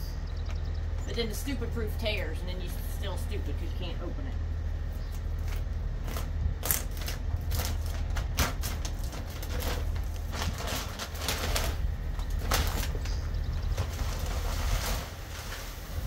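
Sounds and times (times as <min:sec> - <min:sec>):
steady low rumble: 0:00.0 - 0:16.0
bag crinkling and crackling: 0:05.4 - 0:16.0.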